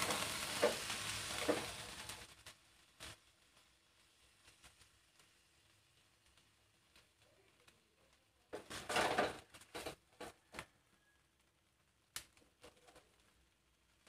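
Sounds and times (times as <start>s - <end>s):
tongs clattering on steel grate: 8.6s - 10.3s.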